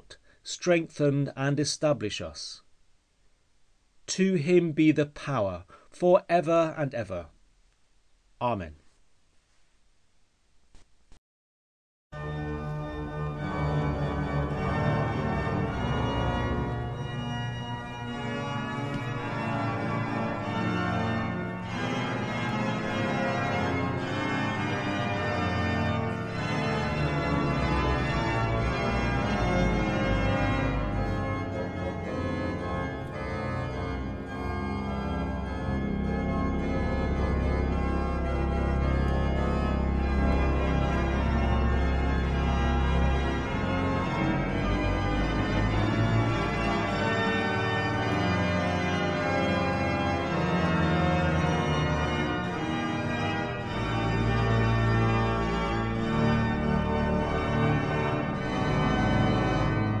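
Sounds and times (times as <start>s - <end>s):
pipe organ chords: 12.2s - 60.0s.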